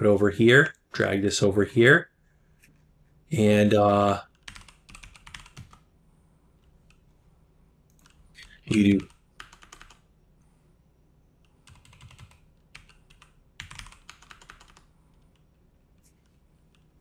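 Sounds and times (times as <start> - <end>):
computer keyboard typing: 4.3 - 5.9, 7.9 - 10.1, 11.4 - 15.6.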